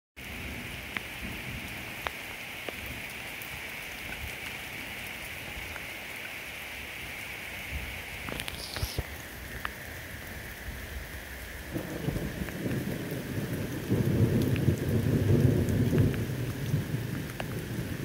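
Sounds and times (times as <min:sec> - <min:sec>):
rain on wet road: 0:00.2 - 0:18.0
water drips: 0:01.7 - 0:06.4, 0:08.2 - 0:10.0.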